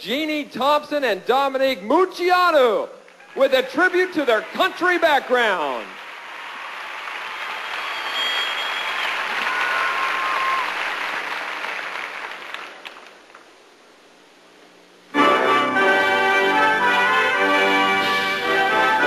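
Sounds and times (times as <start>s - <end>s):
crowd applauding: 3.1s - 13.5s
floor routine music: 15.1s - 19.0s.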